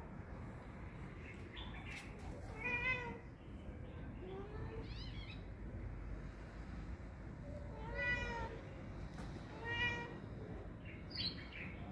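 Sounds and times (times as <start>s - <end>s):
cat meowing: 2.5s - 3.2s, 7.6s - 8.8s, 9.5s - 10.5s.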